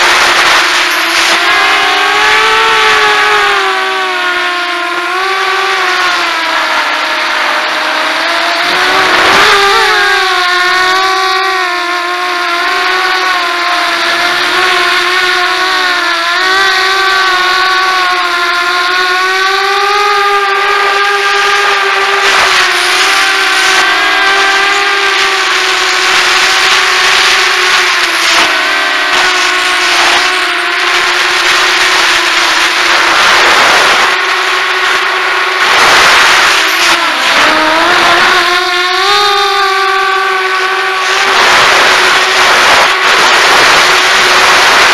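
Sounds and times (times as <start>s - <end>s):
wind noise: 0.0s - 4.0s, 7.0s - 11.5s, 18.9s - 44.9s
drone motors whining: 0.0s - 44.9s.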